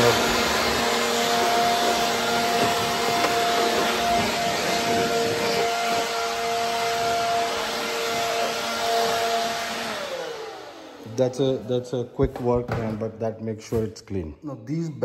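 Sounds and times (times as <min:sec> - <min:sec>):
electric leaf blower running: 0:00.0 - 0:11.7.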